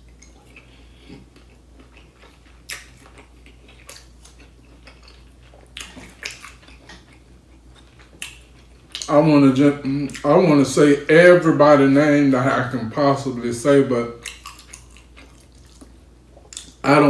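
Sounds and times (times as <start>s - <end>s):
chewing and lip smacking: 0.0s - 9.2s, 14.1s - 16.8s.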